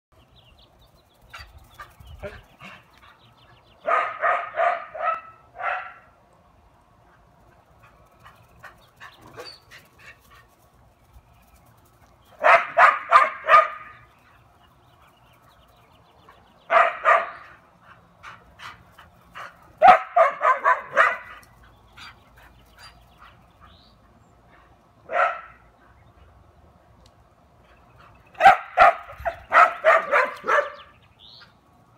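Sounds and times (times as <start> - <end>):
dog barking: 3.8 - 6.1, 12.4 - 13.9, 16.7 - 17.4, 19.8 - 21.3, 25.1 - 25.6, 28.4 - 30.9.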